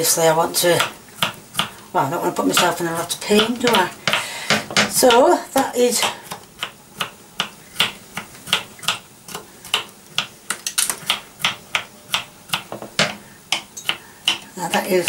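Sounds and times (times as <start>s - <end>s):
knife chopping on a wooden board: 11.0s - 14.9s.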